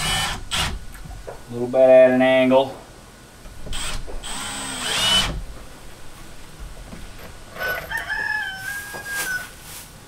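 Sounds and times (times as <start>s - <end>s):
cordless drill driving screw into wood: 0.0s - 0.8s, 3.6s - 5.4s.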